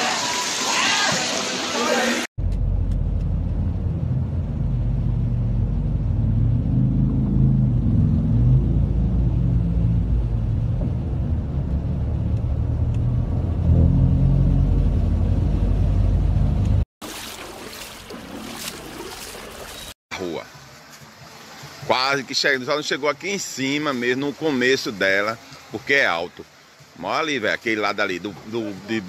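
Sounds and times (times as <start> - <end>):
vehicle engine rumbling: 2.4 - 16.9.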